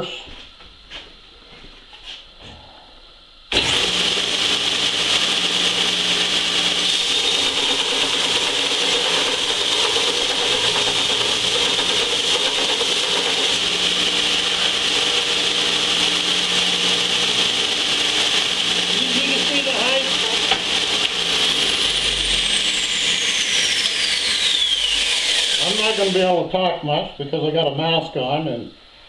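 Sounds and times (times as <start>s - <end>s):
motor hum: 3.4s - 26.4s
belt sander grinding metal: 3.5s - 26.3s.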